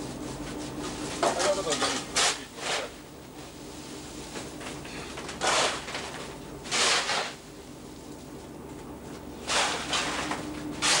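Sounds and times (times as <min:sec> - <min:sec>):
metal scoop crunching ice: 0:06.7 - 0:07.4, 0:10.8 - 0:11.0.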